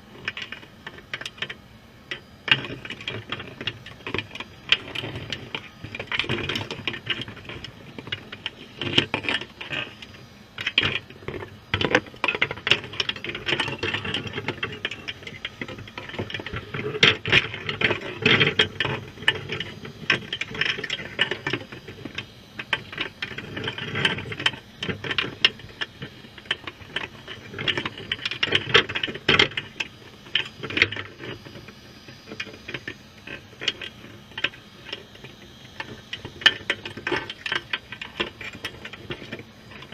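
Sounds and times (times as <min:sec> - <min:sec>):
crabs clicking against wire mesh: 0:00.2 - 0:39.9.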